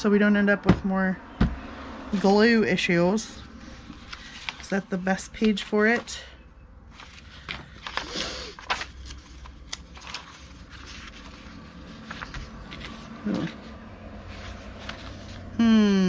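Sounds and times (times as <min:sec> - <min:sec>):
paper rustling: 0:03.5 - 0:06.3, 0:06.9 - 0:15.5.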